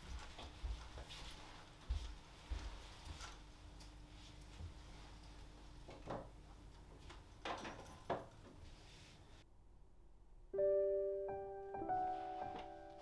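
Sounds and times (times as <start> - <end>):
keyboard playing held notes: 10.6 - 13.0.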